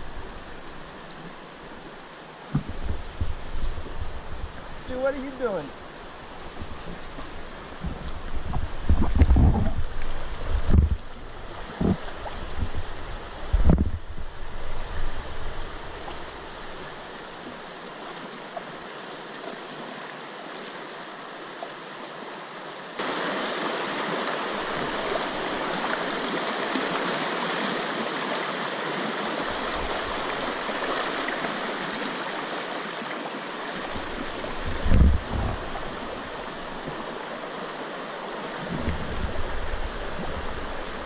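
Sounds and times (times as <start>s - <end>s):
river water rushing over rapids: 0.0s - 41.0s
low thumps: 2.5s - 4.6s, 7.8s - 11.1s.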